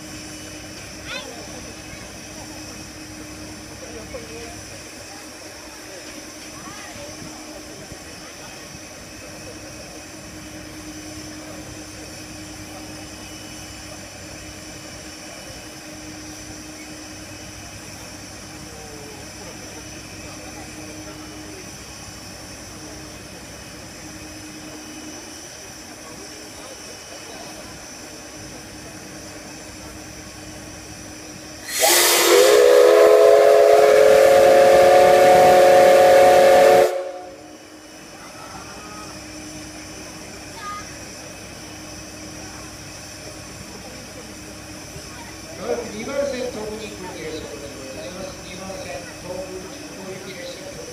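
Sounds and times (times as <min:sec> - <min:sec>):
steam locomotive hissing: 0:00.0 - 0:50.9
steam whistle blast: 0:31.6 - 0:37.6.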